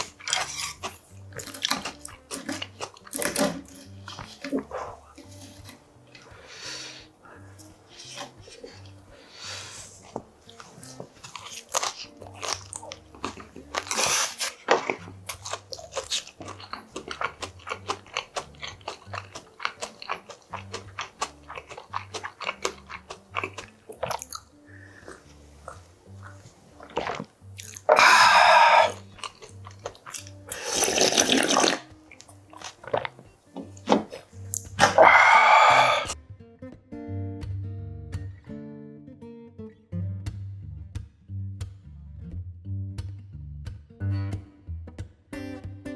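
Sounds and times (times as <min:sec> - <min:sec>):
chewing and slurping noodles: 0:00.0 - 0:06.3, 0:09.9 - 0:36.2
soft background music: 0:00.0 - 0:45.9
loud slurps of broth: 0:26.8 - 0:29.0, 0:30.5 - 0:31.9.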